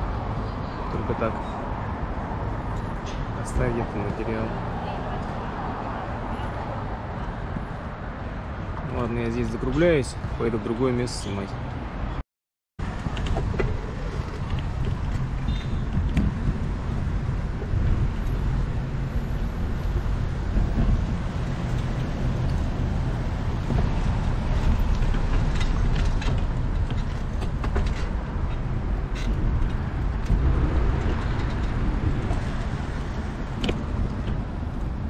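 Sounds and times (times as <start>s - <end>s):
cars passing: 0.0s - 12.2s, 12.8s - 35.0s
wind rumble on microphone: 12.8s - 35.0s.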